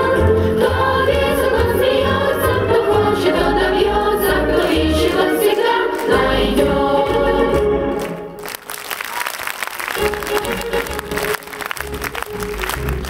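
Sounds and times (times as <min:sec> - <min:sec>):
children's choir singing: 0:00.0 - 0:08.0
audience applause: 0:08.0 - 0:13.0.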